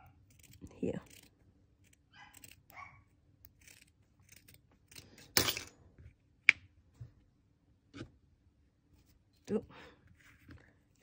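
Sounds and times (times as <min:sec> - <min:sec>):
scissors snipping fleece: 0:00.1 - 0:02.7.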